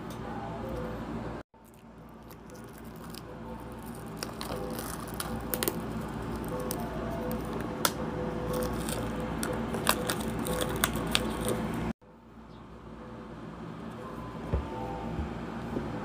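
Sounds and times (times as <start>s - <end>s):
plastic wrap crinkling: 1.6s - 7.5s, 8.5s - 11.9s.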